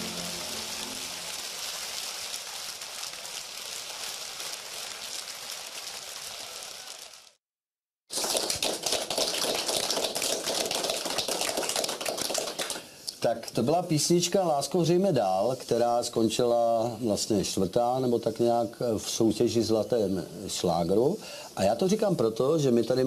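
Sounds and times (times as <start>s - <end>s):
song's last notes: 0.0s - 1.7s
audience applause: 8.1s - 12.9s
close crisp clapping: 8.1s - 13.2s.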